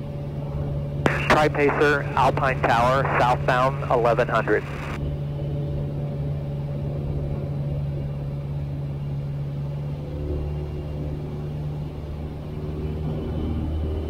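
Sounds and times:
airplane engine drone in cabin: 0:00.0 - 0:14.0.

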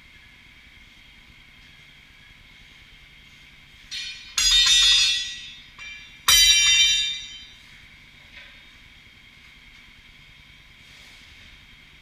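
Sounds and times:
tire iron clanging on concrete: 0:03.8 - 0:08.8.

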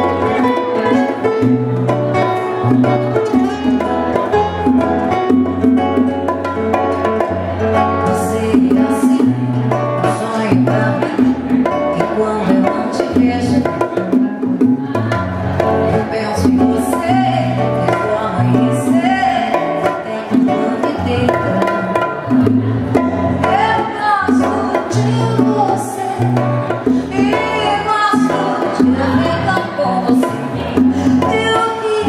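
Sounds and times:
woman singing: 0:00.0 - 0:01.6, 0:08.0 - 0:32.0
acoustic guitar: 0:00.0 - 0:32.0
hand percussion: 0:00.0 - 0:32.0.

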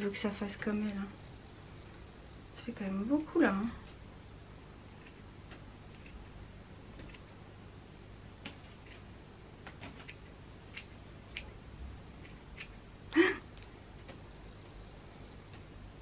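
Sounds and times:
scissors snipping hair: 0:09.9 - 0:11.6, 0:12.2 - 0:12.8.

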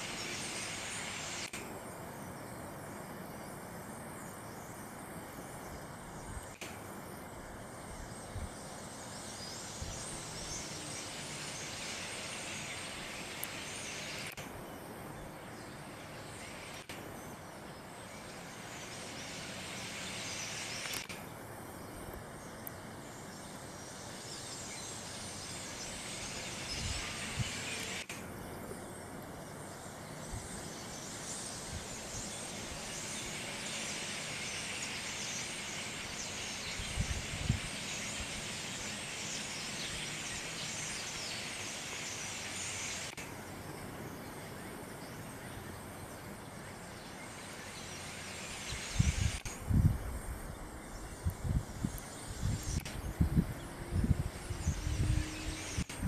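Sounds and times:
flock of small birds chattering: 0:07.6 - 0:21.2.

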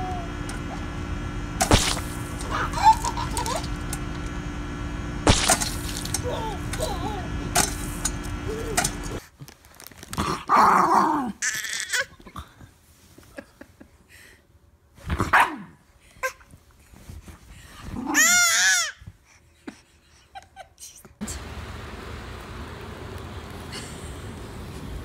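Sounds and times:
dog barking: 0:15.3 - 0:15.7.

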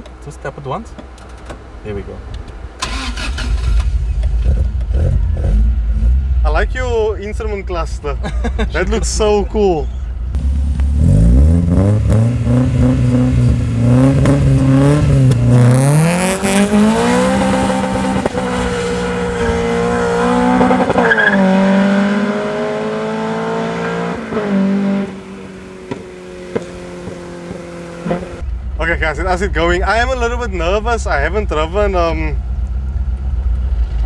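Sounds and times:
car engine revving through gears: 0:10.4 - 0:28.4.

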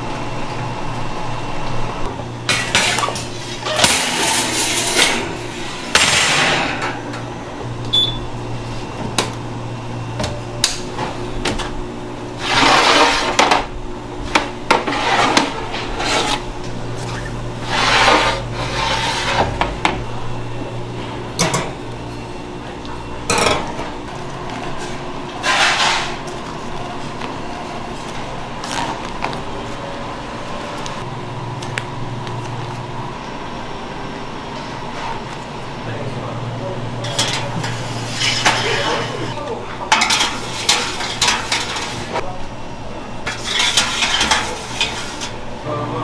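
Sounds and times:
steady low hum: 0:00.0 - 0:46.0
metal trays clattering and scraping: 0:02.5 - 0:07.0, 0:12.4 - 0:13.7, 0:14.7 - 0:16.4, 0:17.0 - 0:19.7, 0:24.8 - 0:26.3, 0:37.0 - 0:42.2, 0:43.3 - 0:45.4.

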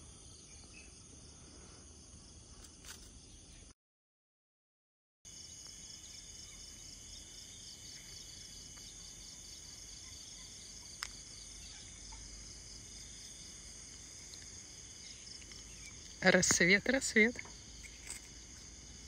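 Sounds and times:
insects chorus pulsing: 0:05.3 - 0:19.0.

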